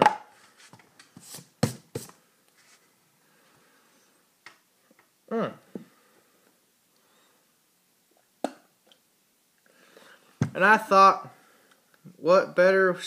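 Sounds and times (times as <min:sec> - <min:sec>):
short falling vocal sound: 0:05.3 - 0:05.7.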